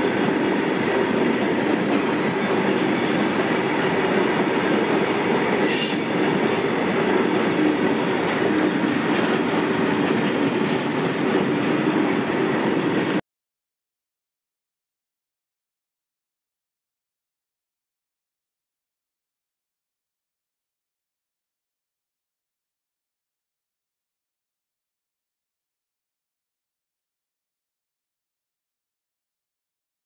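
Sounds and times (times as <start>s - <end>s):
freight wagons rumbling on rails: 0.0s - 13.2s
high-pitched wheel squeal: 5.6s - 6.2s.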